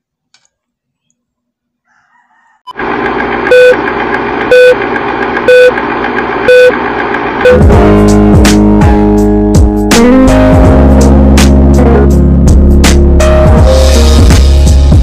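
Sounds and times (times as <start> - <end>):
short beeps: 4.5 - 4.8, 5.5 - 5.7, 6.5 - 6.7.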